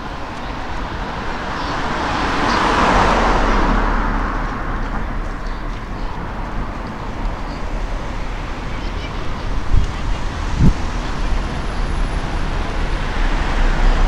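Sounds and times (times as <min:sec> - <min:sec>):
car driving past: 0:01.5 - 0:05.4.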